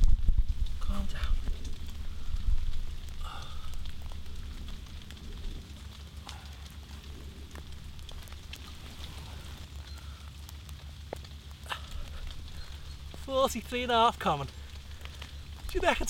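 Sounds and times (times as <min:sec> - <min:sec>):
wind rumble on microphone: 0:00.0 - 0:09.7
light ticks and crackles: 0:00.0 - 0:16.0.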